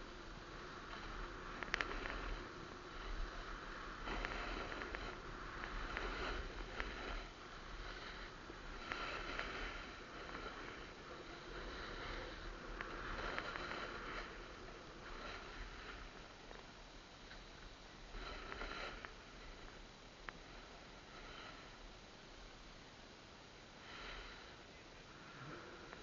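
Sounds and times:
snowboard scraping over snow: 0:00.0 - 0:16.4, 0:18.1 - 0:19.6
sharp ticks: 0:00.9 - 0:02.4.

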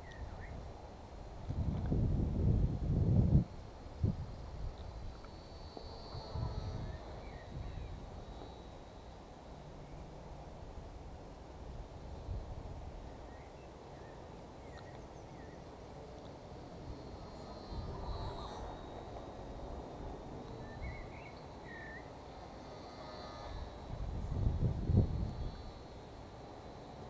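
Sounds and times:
wind gusting on microphone: 0:00.0 - 0:05.2, 0:06.0 - 0:08.3, 0:23.4 - 0:25.8.

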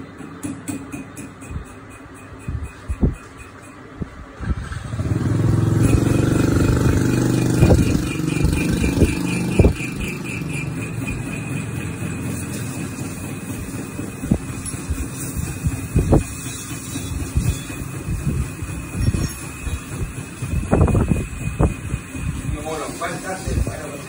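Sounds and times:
sharp metallic knocks: 0:00.0 - 0:04.2, 0:05.0 - 0:24.0
metal lathe humming: 0:05.2 - 0:24.0.

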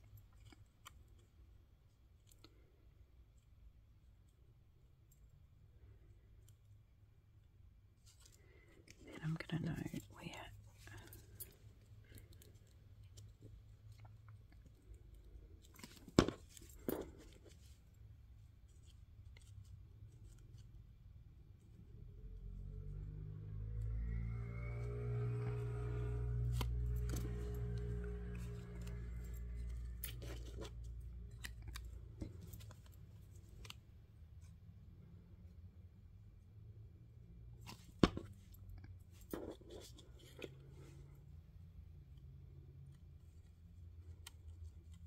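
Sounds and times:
low hum: 0:21.6 - 0:33.8
paper and card crinkling: 0:26.5 - 0:33.8.

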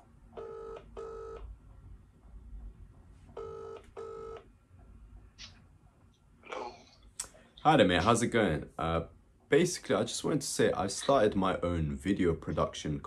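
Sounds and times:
telephone ringback tone: 0:00.4 - 0:01.4, 0:03.4 - 0:04.4.

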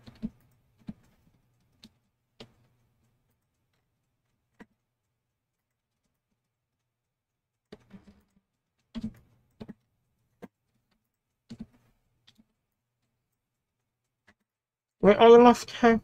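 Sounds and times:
mouse and keyboard clicks: 0:00.0 - 0:06.5, 0:07.5 - 0:12.7.

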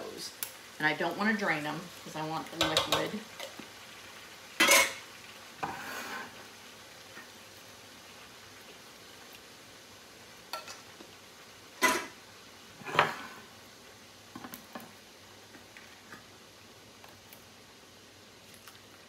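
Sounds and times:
metal cans clanking against skillet: 0:02.6 - 0:03.6, 0:04.6 - 0:05.0, 0:11.8 - 0:12.2.

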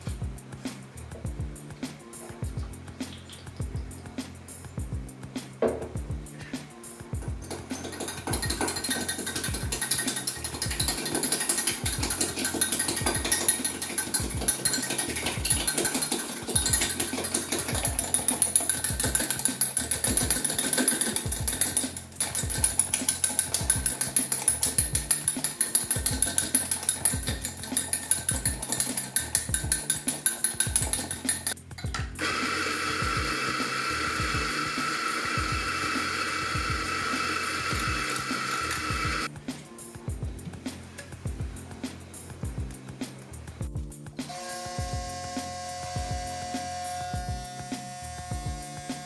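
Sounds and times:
background music with beat: 0:00.0 - 0:49.0
whisk clicking against glass: 0:07.4 - 0:31.6.

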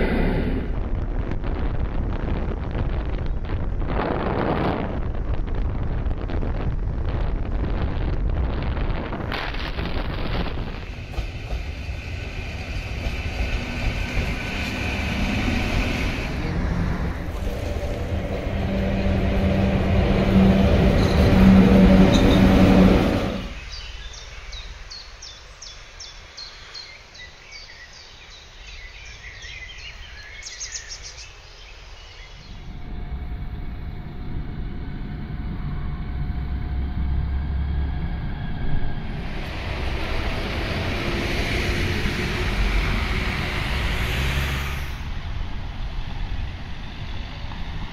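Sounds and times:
vehicle road and wind rumble: 0:00.0 - 0:47.9
bus engine hum: 0:09.6 - 0:23.6, 0:32.5 - 0:47.9
street traffic: 0:11.3 - 0:23.6, 0:32.5 - 0:47.9.

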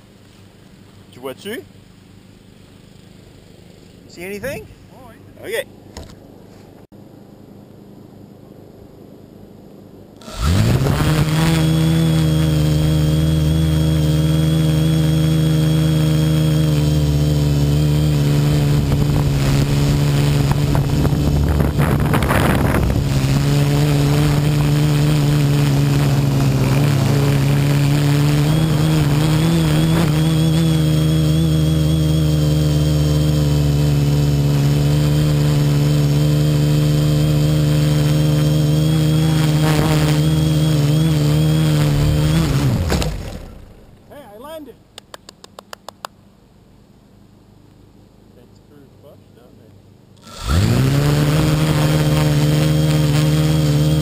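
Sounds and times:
quadcopter motors humming: 0:10.2 - 0:44.0, 0:50.2 - 0:54.0.

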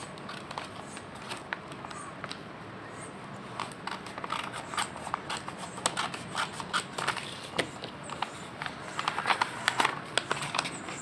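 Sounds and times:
paper crackling: 0:00.0 - 0:02.0, 0:03.5 - 0:11.0
scissors snipping paper: 0:00.0 - 0:02.0, 0:03.5 - 0:11.0.

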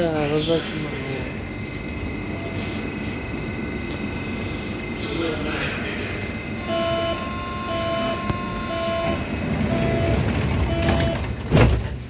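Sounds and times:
train car rumble: 0:00.0 - 0:12.0
short electronic beeps: 0:06.6 - 0:11.2.

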